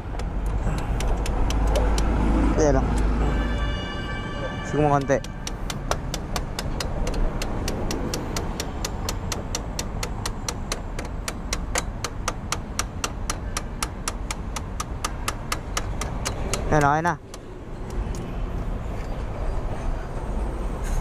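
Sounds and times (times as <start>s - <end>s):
rapid mechanical clicking: 0.0s - 2.2s, 5.3s - 18.2s.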